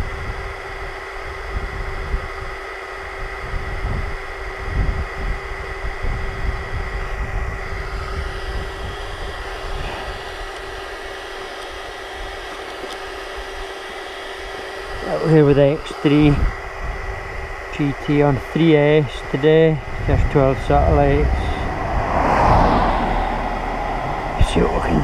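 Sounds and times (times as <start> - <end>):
faint steady hum: 0.0 - 25.0
wind buffeting microphone: 19.8 - 25.0.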